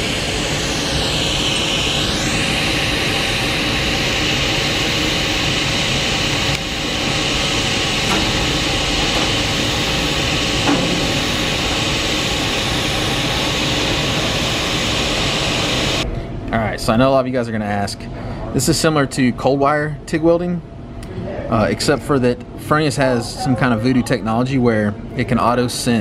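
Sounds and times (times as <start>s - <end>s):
welding arc hissing: 0.0s - 16.0s.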